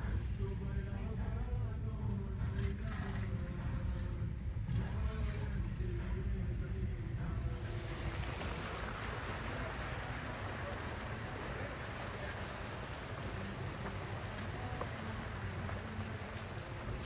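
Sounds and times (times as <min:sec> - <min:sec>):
car engine rumble: 0:00.0 - 0:17.0
tyres swishing through water: 0:07.2 - 0:17.0.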